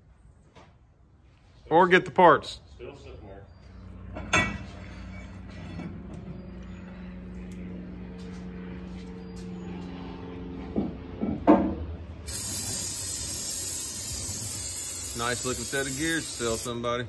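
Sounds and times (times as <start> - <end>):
steady low hum: 2.6 - 17.0
aerosol spray can hissing: 12.3 - 16.8.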